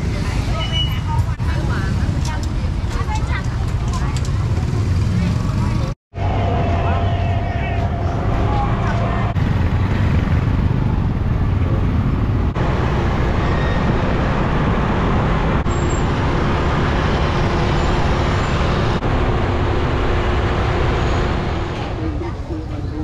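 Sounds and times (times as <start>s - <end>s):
motorbike and car engines: 0.0s - 23.0s
tyres on road: 0.0s - 23.0s.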